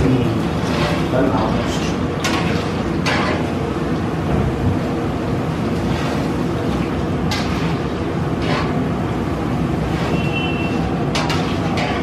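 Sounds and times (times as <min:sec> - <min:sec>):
food sizzling in hot oil: 0:00.0 - 0:12.0
metal skimmer scraping a pan: 0:00.4 - 0:03.5, 0:07.3 - 0:08.9, 0:09.8 - 0:12.0.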